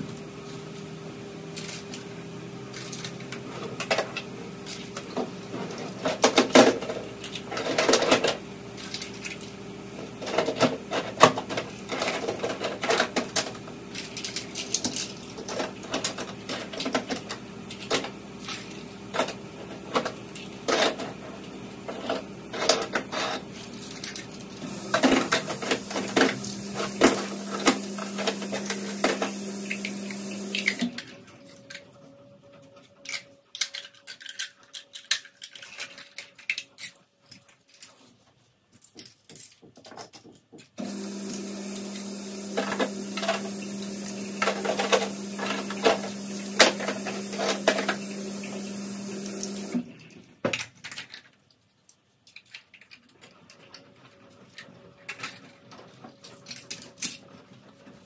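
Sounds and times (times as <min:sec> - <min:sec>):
plastic toys clattering: 0:02.7 - 0:09.5, 0:10.2 - 0:21.3, 0:21.9 - 0:28.9, 0:32.7 - 0:40.8, 0:49.6 - 0:58.0
steady low hum: 0:11.9 - 0:31.0.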